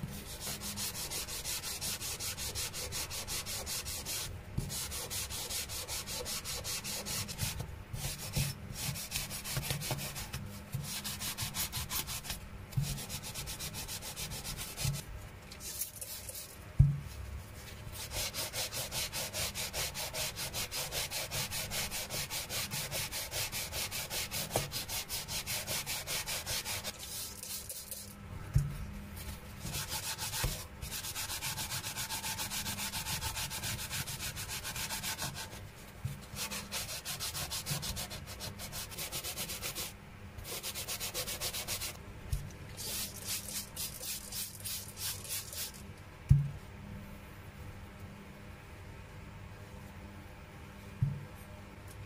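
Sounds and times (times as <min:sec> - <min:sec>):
sanding block on metal: 0:00.3 - 0:15.0, 0:18.0 - 0:28.0, 0:29.6 - 0:35.6, 0:36.4 - 0:42.0.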